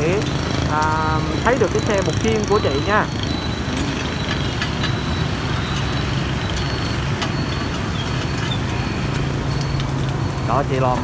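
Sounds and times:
street traffic engine rumble: 0.0s - 11.0s.

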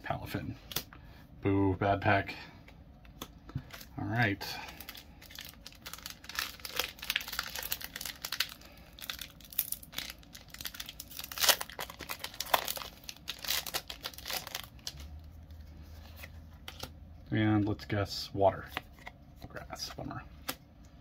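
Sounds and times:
foil wrapper crinkling and tearing: 3.6s - 15.3s.

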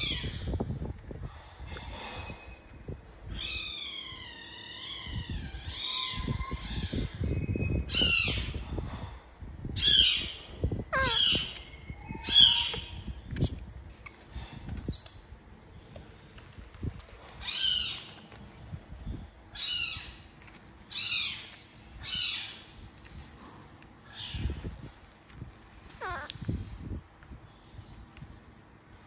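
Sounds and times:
baby monkey squealing: 11.0s - 11.5s, 26.0s - 26.3s.

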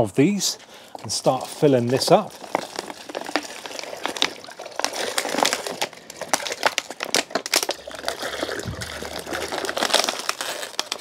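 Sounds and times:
plastic bottle crinkling: 0.9s - 11.0s
water glugging from a bottle: 2.4s - 10.7s.

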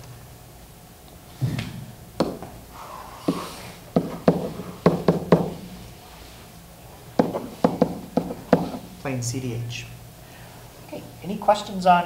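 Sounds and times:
stylus tapping on whiteboard: 2.2s - 2.5s, 3.2s - 5.6s, 7.2s - 8.8s.

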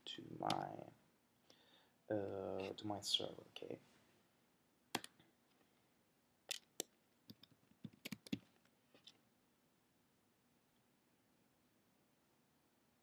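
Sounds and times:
computer keyboard keystrokes: 6.5s - 8.4s.

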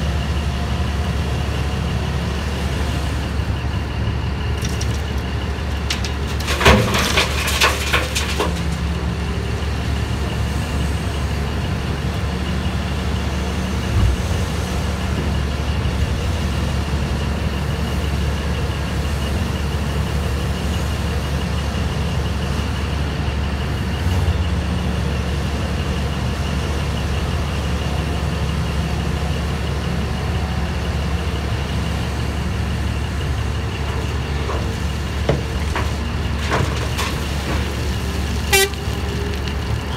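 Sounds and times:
diesel engines droning: 0.0s - 39.9s
rock crashing into truck body: 6.2s - 8.8s.

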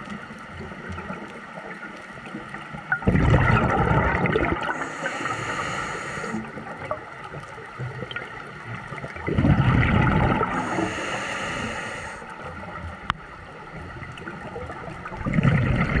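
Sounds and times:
exhaled bubbles rumbling underwater: 0.0s - 16.0s
regulator inhale hiss: 4.7s - 6.6s, 10.5s - 12.4s.

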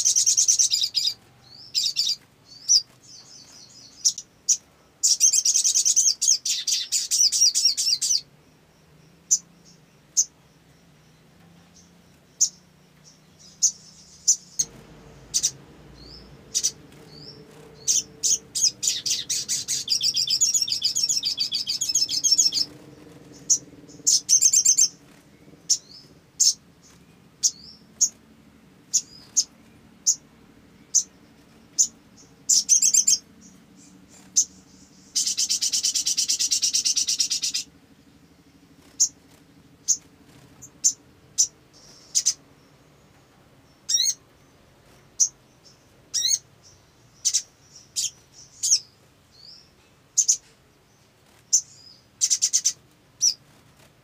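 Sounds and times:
sunbird twittering trill and chirps: 0.0s - 53.6s
faint low hum: 0.0s - 54.0s.

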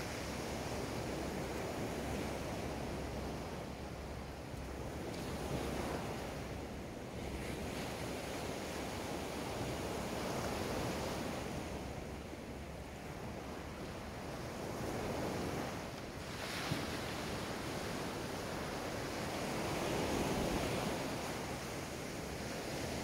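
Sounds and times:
surf washing up beach: 12.7s - 23.0s.

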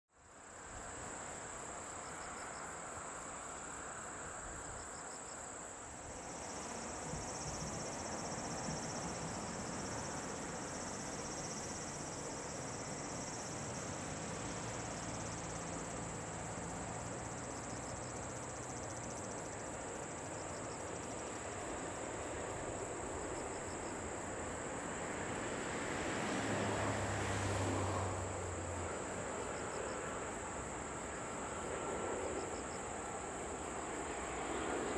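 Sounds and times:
insects chirping: 0.2s - 34.9s
jet engines on approach: 21.1s - 34.9s.

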